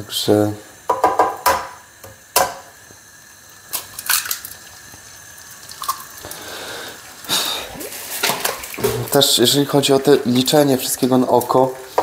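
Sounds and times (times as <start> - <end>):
eggs cracking on a pan: 3.7 - 6.5.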